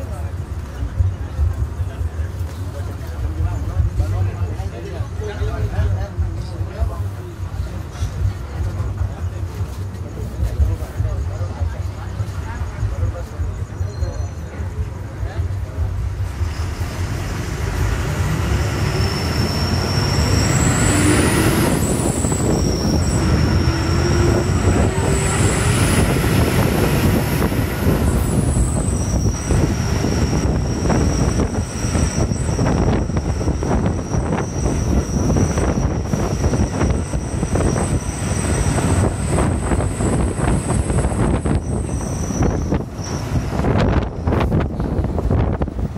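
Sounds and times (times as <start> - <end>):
bus diesel engine running: 0.0 - 45.9
road rumble: 0.0 - 45.9
thin high whines: 16.2 - 45.8.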